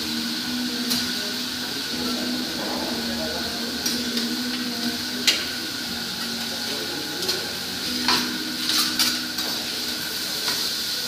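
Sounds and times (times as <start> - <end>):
meat and vegetables sizzling on griddle: 0.0 - 11.0
metal spatula scraping griddle: 7.9 - 9.6.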